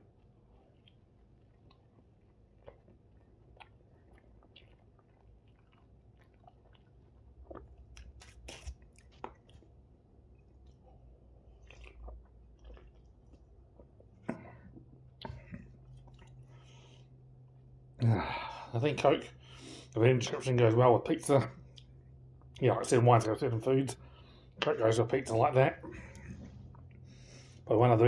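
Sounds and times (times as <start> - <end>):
chewing and biting pizza: 0.0 - 17.2.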